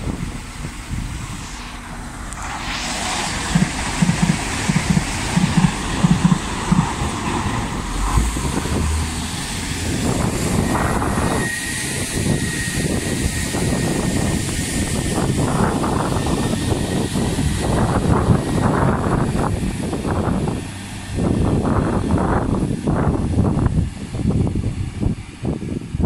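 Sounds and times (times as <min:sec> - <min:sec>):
diesel train running past: 0:00.0 - 0:26.0
wheels clacking over rail joints: 0:03.3 - 0:09.9.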